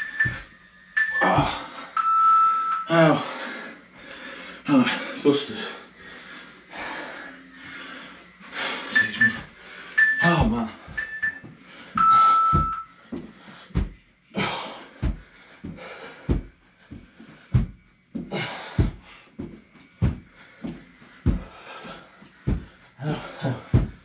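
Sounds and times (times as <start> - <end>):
heavy panting breaths: 2.9 - 24.0
feet thudding on floor: 12.5 - 14.0, 15.0 - 22.8, 23.7 - 24.0.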